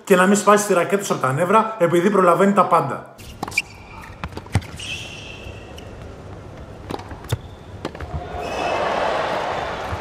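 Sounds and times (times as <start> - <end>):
shoe squeak: 3.2 - 6.1, 7.2 - 8.8
tennis ball bouncing: 3.3 - 4.8, 5.8 - 8.5
racket striking tennis ball: 6.8 - 8.4.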